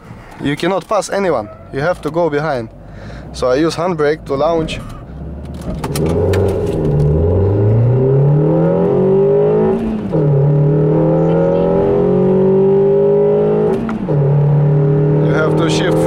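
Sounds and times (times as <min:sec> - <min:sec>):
car engine accelerating hard: 0:03.2 - 0:16.0.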